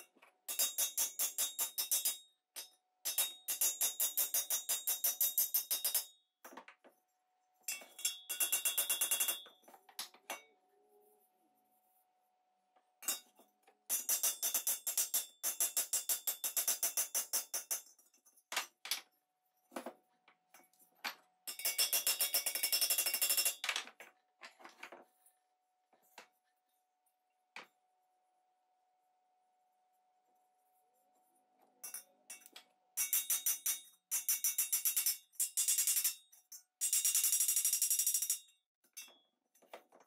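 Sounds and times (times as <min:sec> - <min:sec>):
hammer tapping metal: 0:00.5 - 0:06.2, 0:07.7 - 0:09.7, 0:13.0 - 0:18.1, 0:21.5 - 0:23.6, 0:31.8 - 0:39.2.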